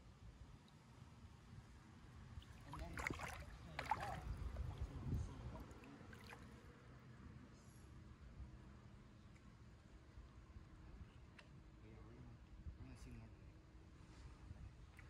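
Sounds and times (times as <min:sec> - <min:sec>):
water splashing and gurgling: 0:02.4 - 0:06.6.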